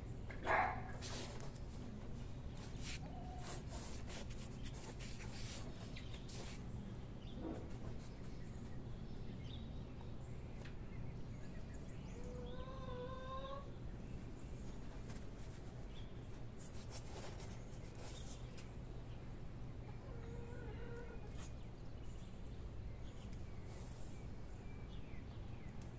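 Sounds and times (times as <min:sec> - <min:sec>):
hands rustling in soil: 0:01.0 - 0:06.8.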